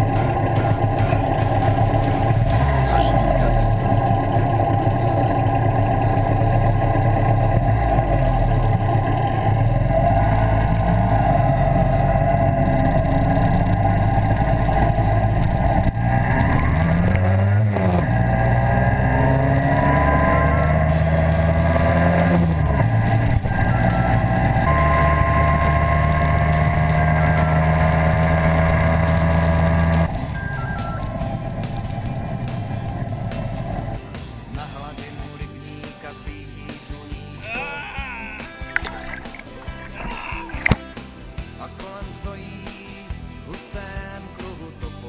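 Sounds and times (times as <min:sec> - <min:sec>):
two-stroke moped engine: 0:00.0 - 0:34.8.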